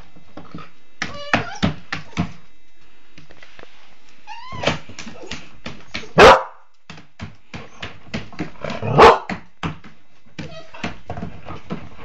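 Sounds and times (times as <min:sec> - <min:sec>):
puppy whining: 0:01.0 - 0:02.4, 0:04.2 - 0:06.2, 0:10.4 - 0:11.0
puppy barking: 0:06.0 - 0:06.6, 0:08.8 - 0:09.4.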